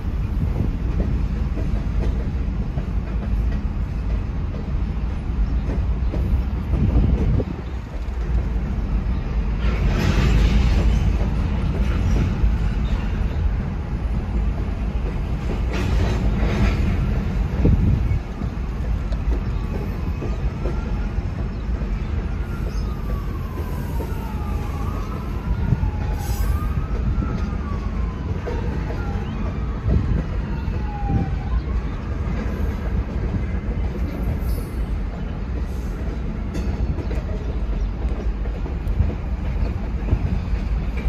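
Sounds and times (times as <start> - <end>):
train wheels rumbling on rail: 0.0 - 41.0
siren wailing: 22.4 - 32.4.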